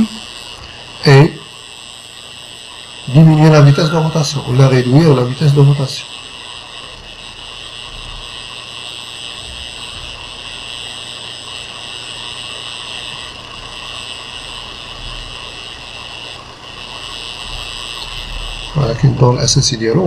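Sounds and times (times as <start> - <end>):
background hiss: 0.0 - 10.4
faint high whining tones: 0.0 - 20.0.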